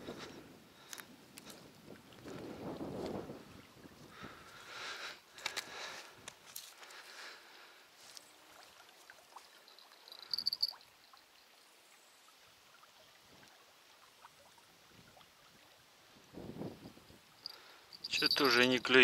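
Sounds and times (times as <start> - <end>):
faint outdoor background: 0.0 - 19.0
bite alarm bell jingling: 9.6 - 10.8, 17.4 - 19.0.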